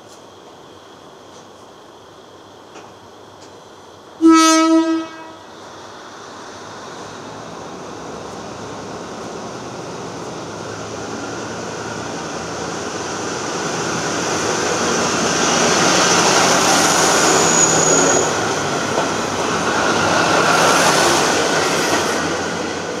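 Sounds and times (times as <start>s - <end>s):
diesel railcar engine: 0.0s - 23.0s
train wheels rolling on rails: 2.6s - 3.8s, 5.5s - 23.0s
high wheel squeal: 15.5s - 18.7s.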